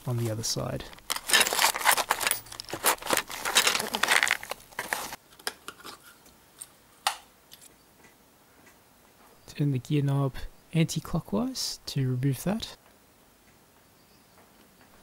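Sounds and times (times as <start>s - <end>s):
paper receipts crinkling: 0.0s - 5.2s
coins clinking: 1.0s - 5.2s.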